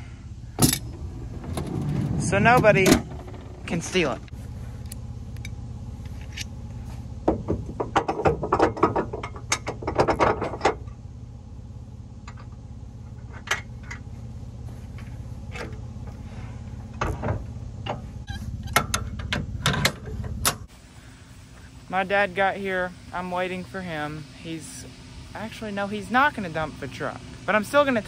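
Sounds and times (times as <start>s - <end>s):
low engine idle: 0.0s - 28.0s
metallic clicking and clanking: 7.3s - 11.0s, 16.9s - 20.7s.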